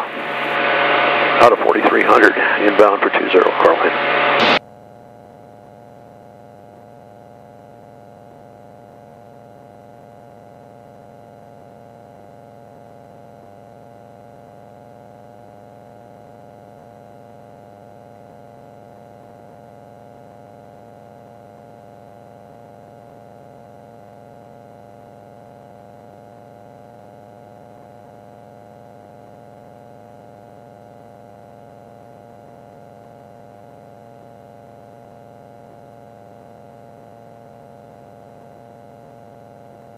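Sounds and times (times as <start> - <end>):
aircraft engine and propeller drone: 0.0 - 4.6.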